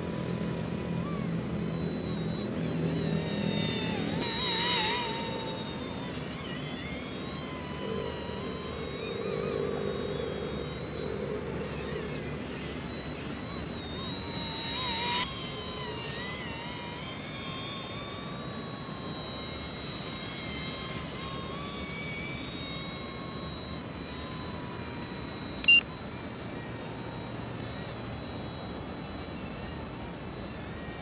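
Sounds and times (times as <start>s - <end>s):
toy helicopter rotor whine: 0.0s - 31.0s
short sharp beep: 25.6s - 26.0s.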